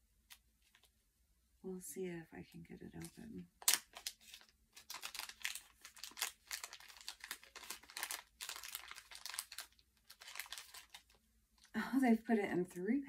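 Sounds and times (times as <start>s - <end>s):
gift wrapping crinkling: 3.0s - 11.8s.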